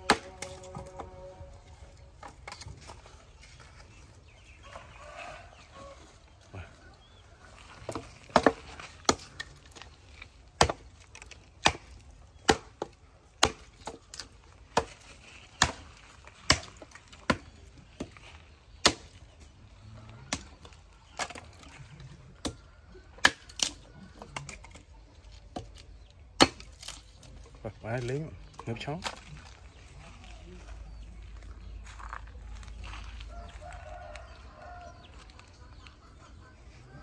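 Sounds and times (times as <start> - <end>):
axe chopping wood: 0.0 - 1.0, 7.8 - 19.4, 22.4 - 24.8, 25.5 - 27.3.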